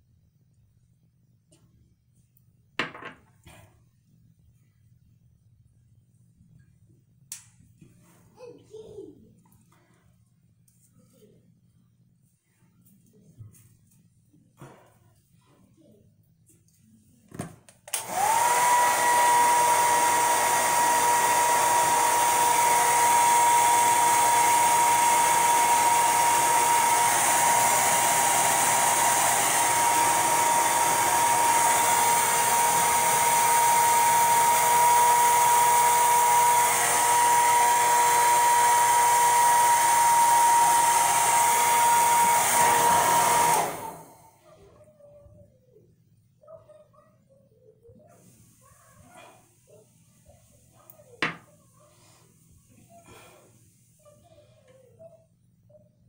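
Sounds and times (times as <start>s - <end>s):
hair dryer whine and air rush: 17.9s - 44.4s, 51.2s - 51.4s.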